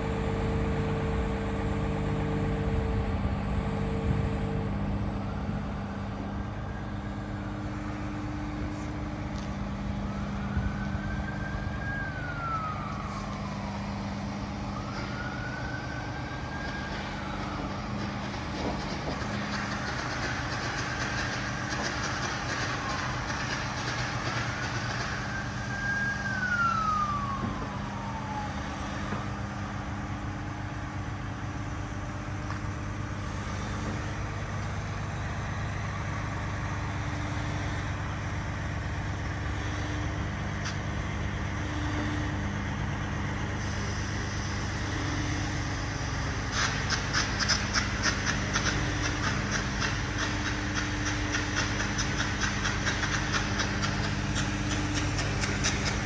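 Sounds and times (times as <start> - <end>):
excavator diesel engine running: 0.0 - 56.0
fast metallic clatter: 18.7 - 25.5, 46.5 - 56.0.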